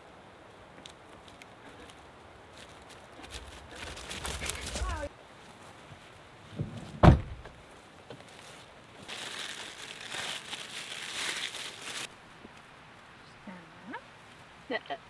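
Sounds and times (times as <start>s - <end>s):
plastic bag crinkling: 2.6s - 5.1s, 8.3s - 12.1s.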